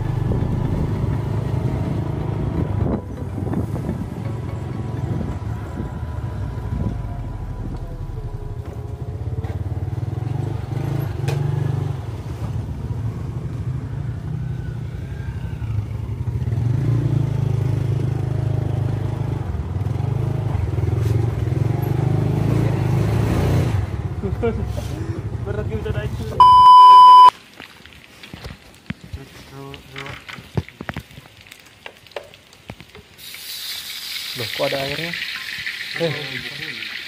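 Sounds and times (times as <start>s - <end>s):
motorcycle engine running: 0.0s - 11.7s.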